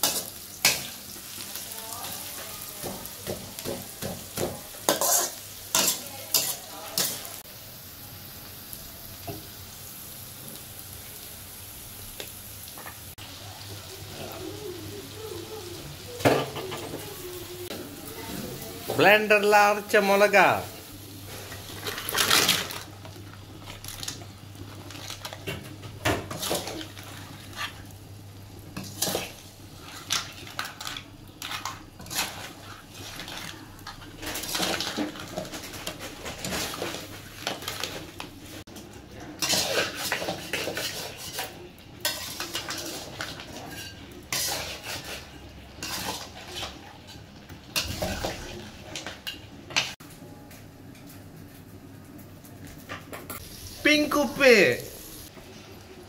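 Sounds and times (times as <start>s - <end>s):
crab shells knocking on pan: 2.8s - 4.7s
steel ladle scraping a wok: 4.9s - 7.3s, 39.4s - 47.2s.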